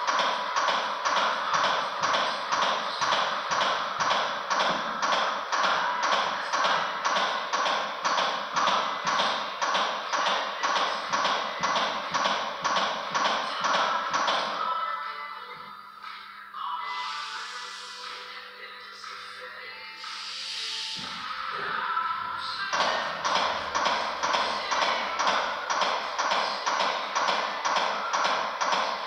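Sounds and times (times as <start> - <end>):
manikin chest clicking and thudding: 0.0 - 14.5
faint background music: 0.0 - 29.0.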